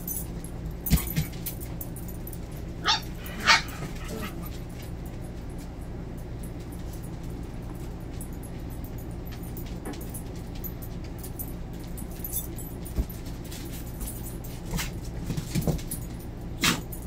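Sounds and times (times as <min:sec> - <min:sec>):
puppy yips and growls: 0:02.8 - 0:04.4
puppies scuffling on hard floor: 0:06.5 - 0:16.2.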